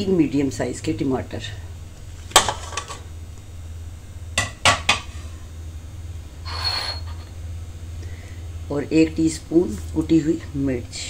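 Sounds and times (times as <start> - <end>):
steady low hum: 0.0 - 11.0
dishware knocking metal pot: 4.4 - 5.1.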